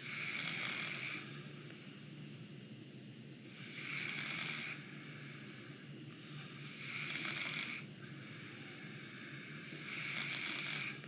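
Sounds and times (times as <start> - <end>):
man snoring through nose: 0.0 - 1.3, 3.5 - 4.9, 6.6 - 7.9, 9.5 - 11.0.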